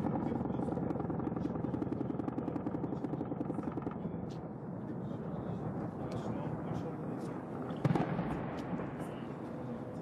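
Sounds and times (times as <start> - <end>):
helicopter rotor chopping: 0.0 - 7.8.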